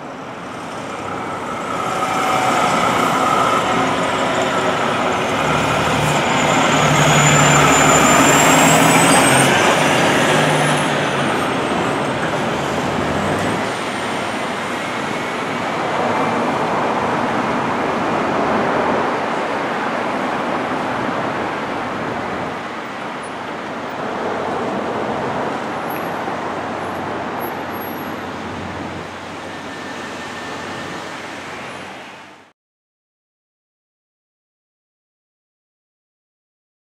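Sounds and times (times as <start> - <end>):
fire truck diesel engine: 0.0 - 18.1
road noise: 0.0 - 32.5.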